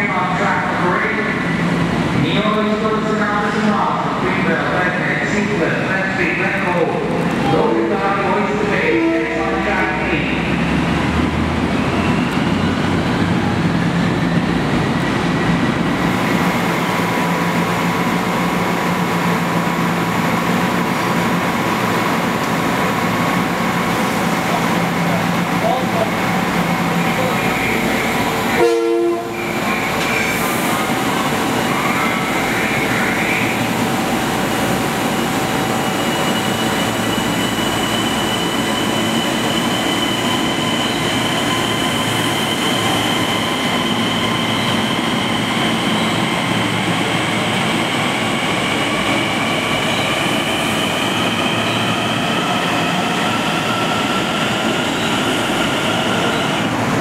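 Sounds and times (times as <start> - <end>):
train running noise: 0.0 - 57.0.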